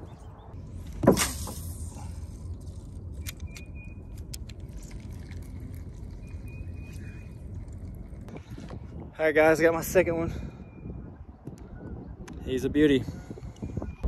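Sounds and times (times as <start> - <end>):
wind buffeting microphone: 4.4 - 14.0.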